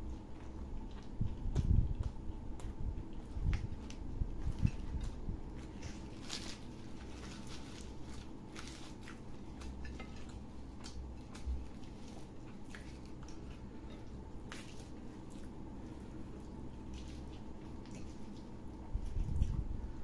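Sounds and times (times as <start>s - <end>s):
chewing close to microphone: 0.0s - 20.0s
low steady hum: 0.0s - 20.0s
flatbread tearing: 3.8s - 13.1s.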